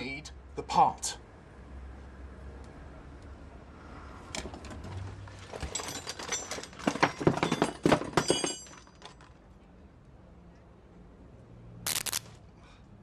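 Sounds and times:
hard objects clattering and clinking: 5.4 - 9.4.

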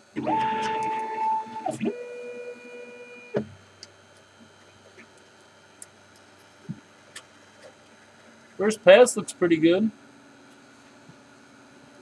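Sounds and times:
stepper motors whining: 0.0 - 3.6.

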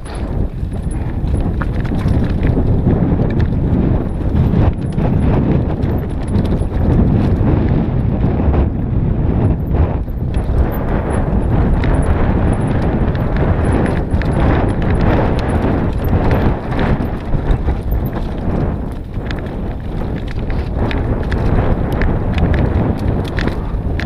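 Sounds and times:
tyres crunching over stones: 0.0 - 4.9, 10.3 - 24.0
bike frame and chain clattering: 0.0 - 7.6, 9.4 - 24.0.

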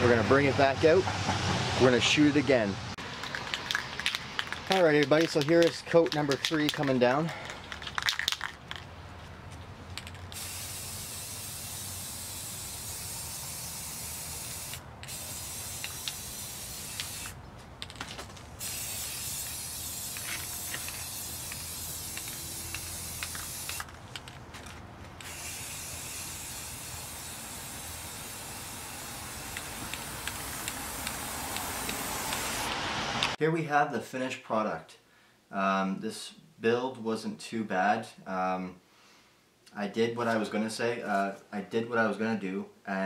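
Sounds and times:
spray-paint can hissing: 10.3 - 17.4, 18.6 - 23.8, 25.2 - 33.3.

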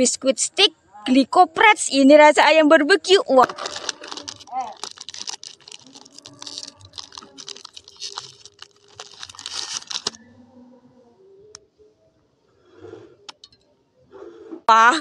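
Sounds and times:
foil snack packet crinkling: 3.4 - 10.2.

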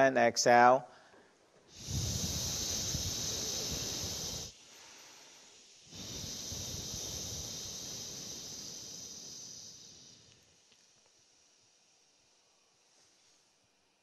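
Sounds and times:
man's long breathy exhalation: 0.9 - 10.3.

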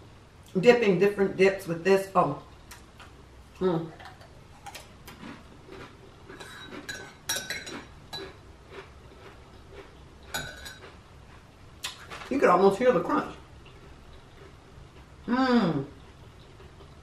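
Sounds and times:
metal utensil clinking on plate: 6.4 - 7.8, 10.4 - 10.8.

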